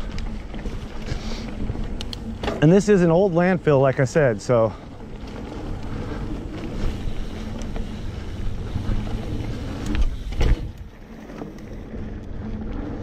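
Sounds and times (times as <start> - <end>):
bike tyres rumbling on dirt: 0.0 - 13.0
bike knocking over bump: 9.1 - 11.6.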